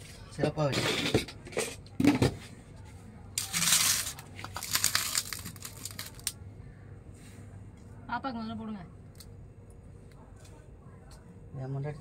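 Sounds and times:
crinkling rustle: 0:03.4 - 0:06.4.

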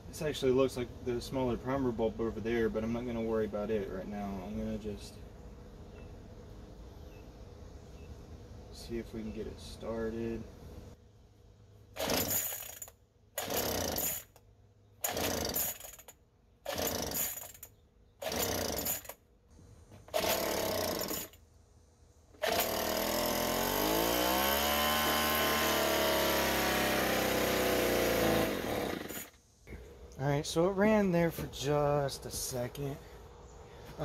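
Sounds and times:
leaf blower engine running: 0:22.4 - 0:29.3.

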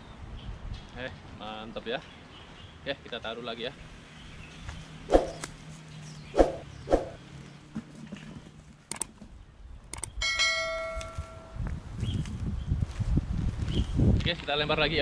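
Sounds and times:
short sharp sounds: 0:05.1 - 0:05.5, 0:06.4 - 0:07.2
bright bell chime: 0:10.2 - 0:11.6.

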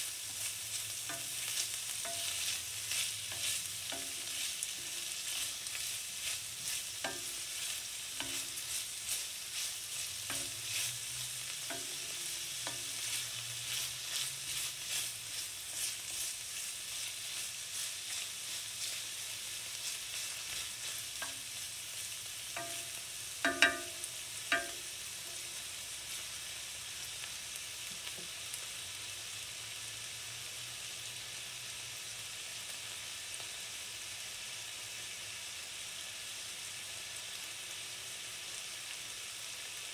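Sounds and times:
onion and bacon sizzling in a skillet: 0:00.0 - 0:39.9
wooden spoon stirring: 0:01.1 - 0:19.0.

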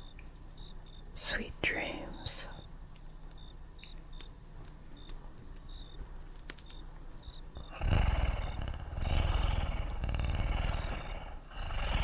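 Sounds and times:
campfire crackling and popping: 0:00.0 - 0:12.0
low rumbling animal purr: 0:07.6 - 0:12.0.

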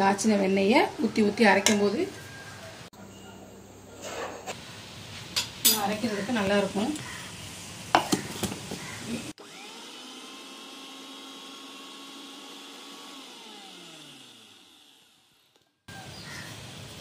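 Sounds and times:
mixer grinder motor whining: 0:08.1 - 0:17.0.

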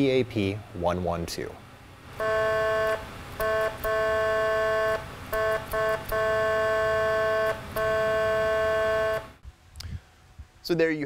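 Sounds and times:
two-note electronic air horn blasts: 0:02.2 - 0:09.4.

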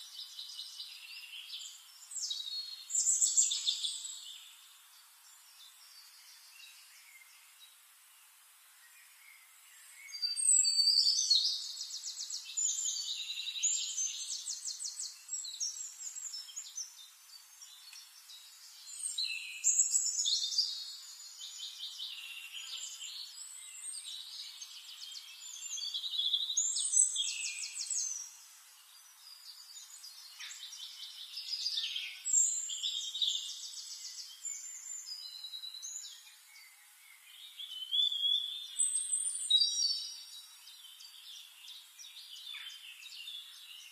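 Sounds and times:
songbirds chirping and trilling: 0:00.0 - 0:43.9.

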